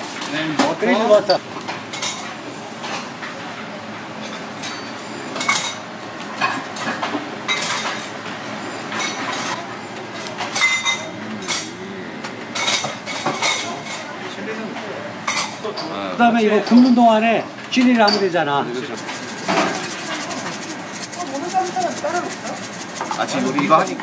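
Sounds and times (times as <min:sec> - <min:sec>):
steady background hum: 0:00.0 - 0:24.0
spatula scraping and tapping: 0:19.0 - 0:24.0.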